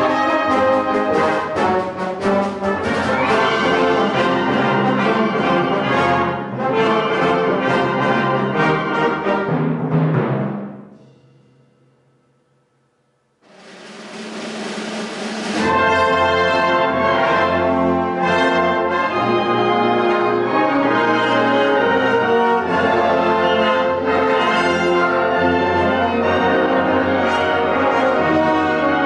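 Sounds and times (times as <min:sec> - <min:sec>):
wind band playing loudly: 0:00.0 - 0:10.9, 0:13.5 - 0:29.0
percussion roll: 0:08.9 - 0:16.8.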